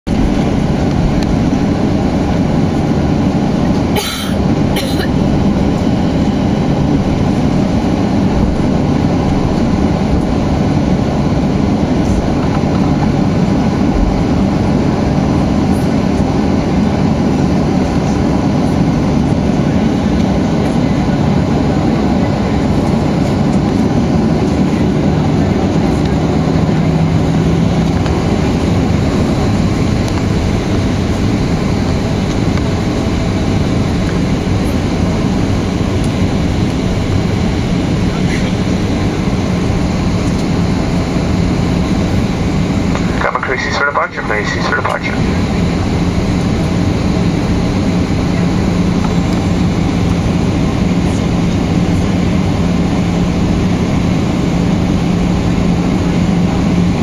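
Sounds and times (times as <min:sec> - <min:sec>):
low engine rumble: 0:00.0 - 0:57.0.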